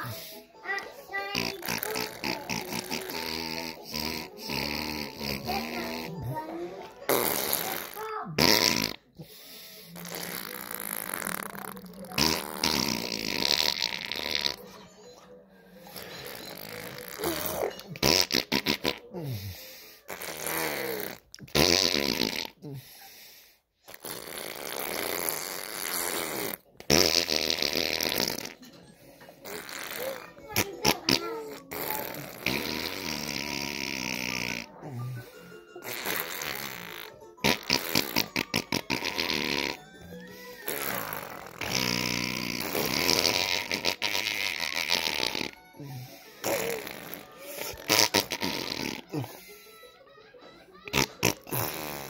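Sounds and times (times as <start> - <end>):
baby making raspy tongue noises: 1.1 - 14.6, 16.0 - 22.8, 29.4 - 49.4.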